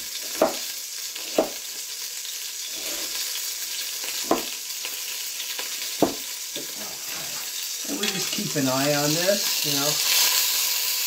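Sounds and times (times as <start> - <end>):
meat sizzling in hot oil: 0.0 - 11.0
knife chopping on cutting board: 0.2 - 1.6, 4.2 - 4.6, 6.0 - 6.2.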